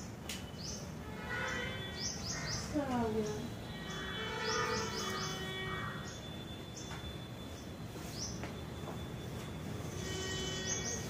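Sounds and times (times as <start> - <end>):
high rising bird chirps: 1.5 - 9.4.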